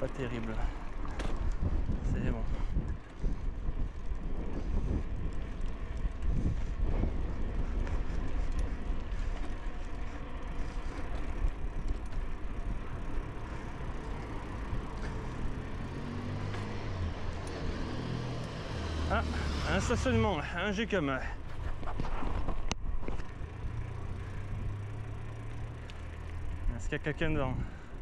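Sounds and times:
bicycle tyre rumble on pavement: 0:00.0 - 0:28.0
wind rush: 0:01.4 - 0:09.3.

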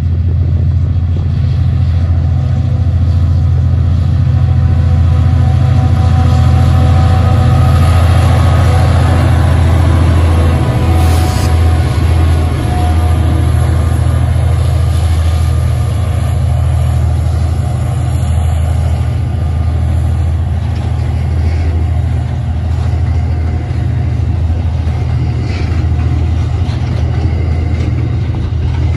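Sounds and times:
diesel locomotive droning: 0:00.0 - 0:28.9
train wheels running on rails: 0:00.0 - 0:28.9.

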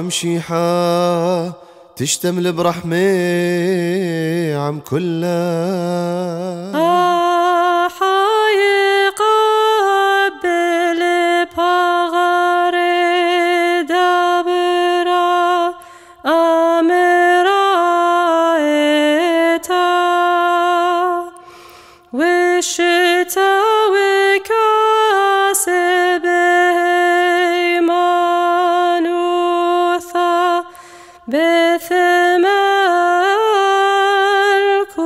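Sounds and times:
person singing unaccompanied chant: 0:00.0 - 0:21.4, 0:22.1 - 0:35.0.

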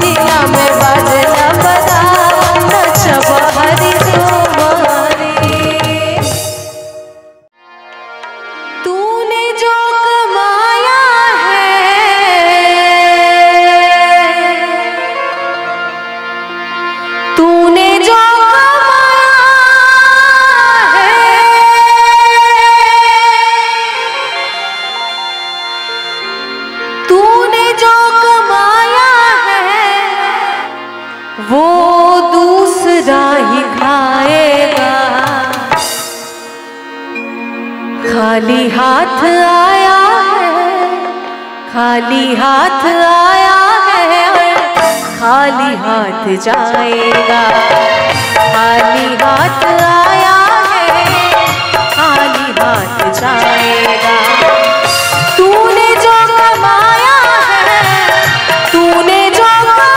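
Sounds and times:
woman singing: 0:00.0 - 0:07.1, 0:08.8 - 0:15.6, 0:17.2 - 0:25.0, 0:27.0 - 0:35.9, 0:38.0 - 0:59.9
harmonium: 0:00.0 - 0:59.9.

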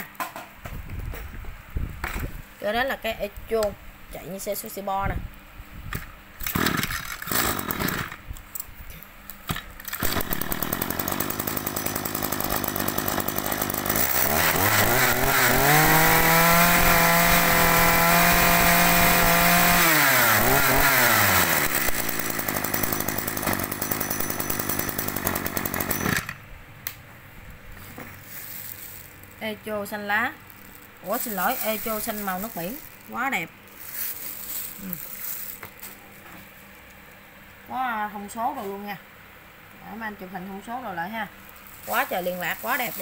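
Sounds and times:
brush cutter engine revving: 0:06.4 - 0:08.2, 0:09.9 - 0:26.4, 0:30.6 - 0:35.8, 0:41.8 - 0:43.0.

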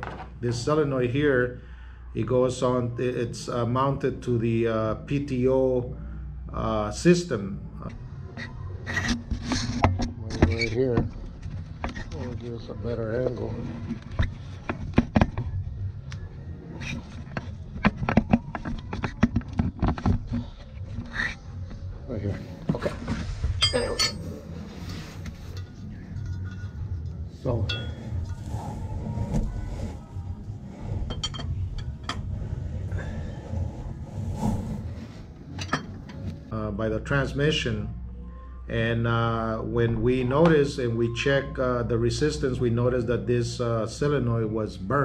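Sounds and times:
steady low rumble: 0:21.5 - 0:38.2.

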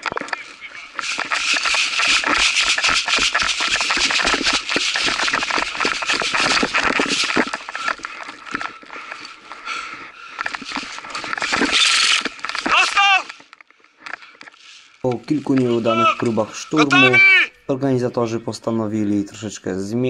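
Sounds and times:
kit rattling: 0:00.0 - 0:12.8
running footsteps on forest floor: 0:00.0 - 0:13.5, 0:14.3 - 0:18.6.

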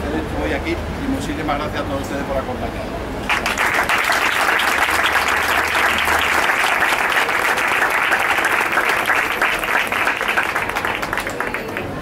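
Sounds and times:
crowd applauding: 0:03.2 - 0:12.0.

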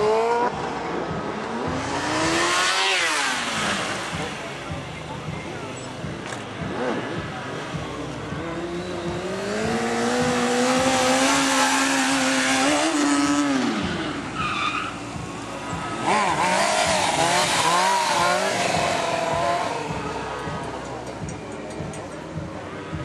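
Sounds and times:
motorcycle engine revving: 0:00.0 - 0:23.0
tyre squeal: 0:14.3 - 0:15.1.

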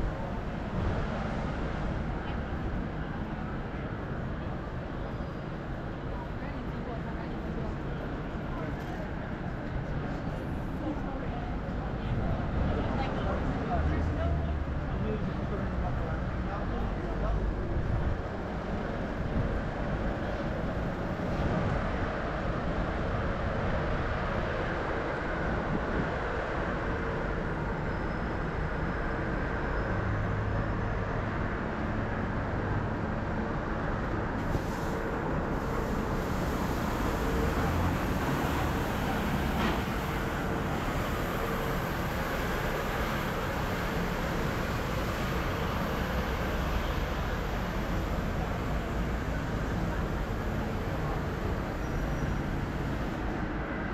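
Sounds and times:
road traffic: 0:00.0 - 0:53.9.

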